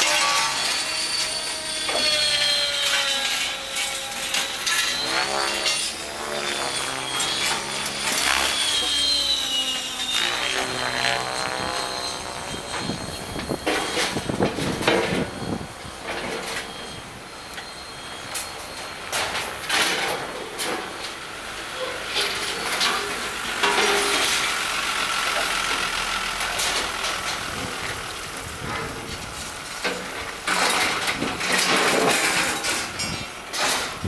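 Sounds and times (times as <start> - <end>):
rc helicopter motor whine: 0.0 - 18.8, 21.8 - 34.0.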